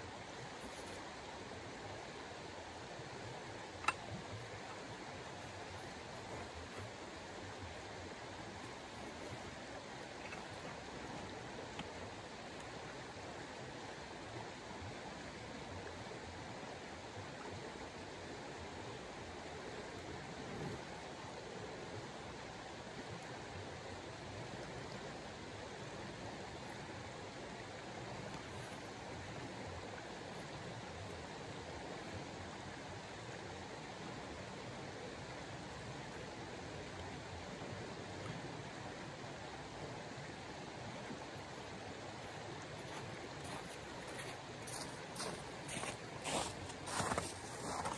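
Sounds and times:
outdoor ambient rushing noise: 0.0s - 47.9s.

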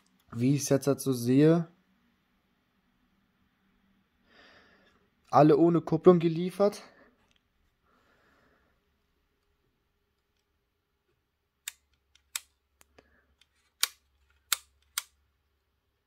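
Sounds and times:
plastic parts clicking: 11.6s - 15.2s.

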